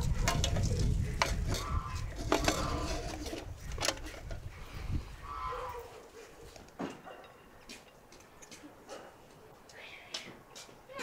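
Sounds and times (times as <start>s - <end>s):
farm animal calling: 0.0s - 3.8s, 4.5s - 6.1s.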